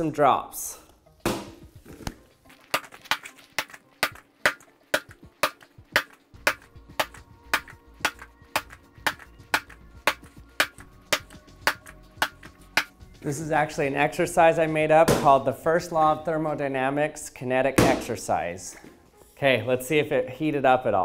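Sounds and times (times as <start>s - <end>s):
background music with tapping beat: 0.9s - 16.6s, 17.6s - 19.4s
bag of shot thudding on concrete: 1.3s - 11.9s.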